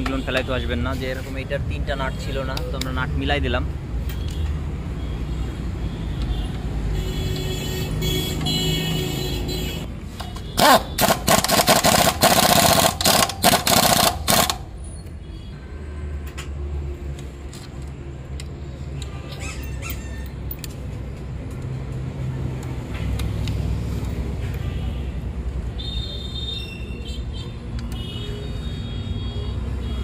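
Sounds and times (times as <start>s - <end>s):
pneumatic impact wrench bursts: 10.6s - 14.7s.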